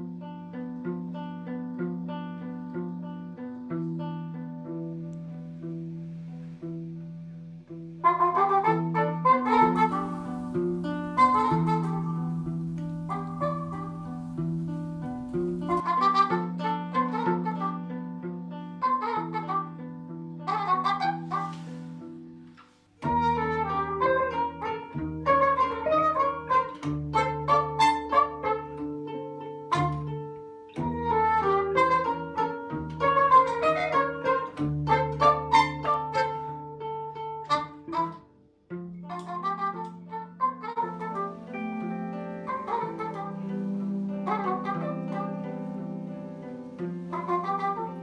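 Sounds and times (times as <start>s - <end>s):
electric guitar notes: 0.0s - 48.0s
trumpet: 8.0s - 22.3s, 22.9s - 38.4s, 39.0s - 48.0s
plucked zither: 40.7s - 48.0s.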